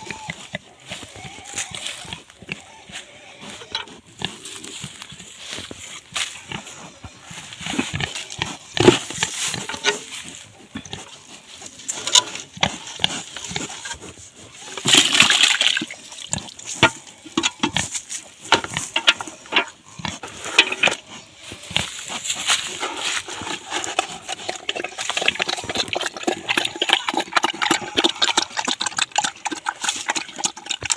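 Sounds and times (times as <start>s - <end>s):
pigs grunting: 0.0s - 30.9s
wet feed sloshing: 12.0s - 17.9s, 18.6s - 30.9s.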